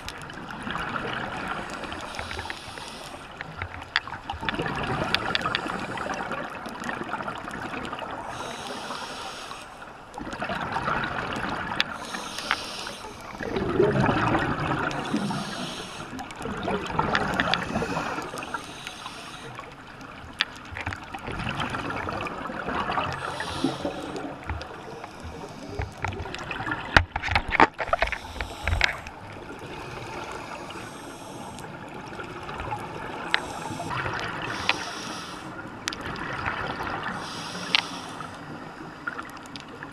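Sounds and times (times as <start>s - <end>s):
hissing regulator inhalations: 1.8s - 3.3s, 8.3s - 9.8s, 12.0s - 13.6s, 15.0s - 16.2s, 17.3s - 19.7s, 23.2s - 26.0s, 27.9s - 29.1s, 29.8s - 31.8s, 33.2s - 35.6s, 37.0s - 38.5s
bubbling exhalations: 13.4s - 18.9s.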